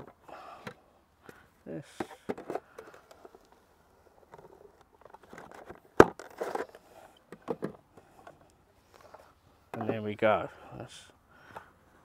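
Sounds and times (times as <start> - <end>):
plastic clicks and rustles: 2.0 - 3.6, 4.2 - 10.0.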